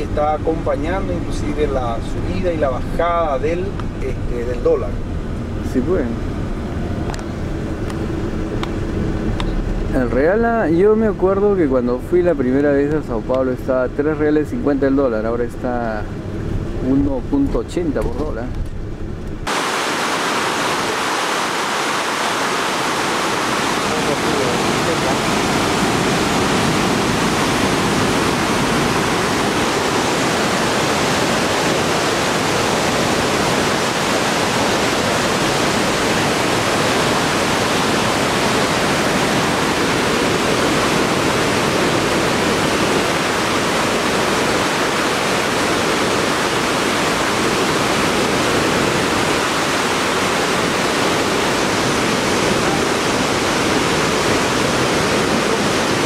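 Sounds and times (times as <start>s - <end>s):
water rushing down spillway: 19.5s - 56.0s.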